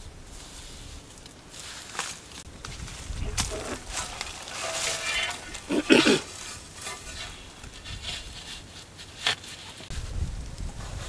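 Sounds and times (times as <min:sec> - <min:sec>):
plastic board rustling and scraping: 0:02.7 - 0:10.2.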